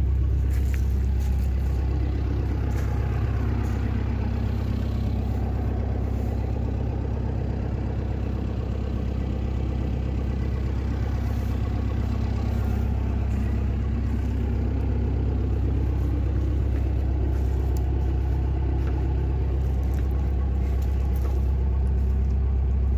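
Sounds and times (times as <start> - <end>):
engine idling: 0.0 - 22.9.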